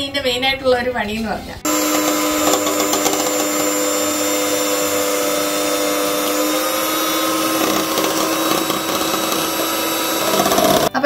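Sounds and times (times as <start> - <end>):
electric hand mixer whisking: 1.7 - 11.0.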